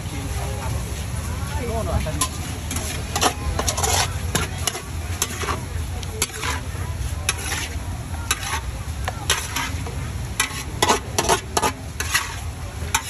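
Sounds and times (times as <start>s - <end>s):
food sizzling: 0.0s - 13.0s
metal spatula scraping a wok: 1.9s - 13.0s.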